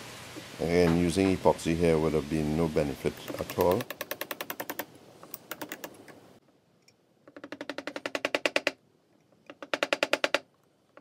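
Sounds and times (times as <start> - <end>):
small hammer tapping: 3.2 - 6.0, 7.2 - 8.8, 9.4 - 11.0.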